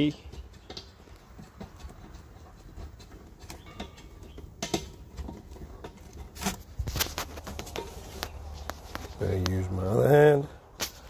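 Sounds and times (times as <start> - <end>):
handling clicks and knocks: 0.0 - 10.0.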